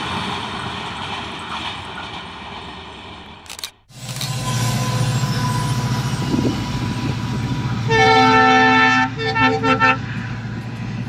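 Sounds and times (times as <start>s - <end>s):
locomotive engine running: 0.0s - 11.0s
locomotive horn: 4.3s - 10.4s.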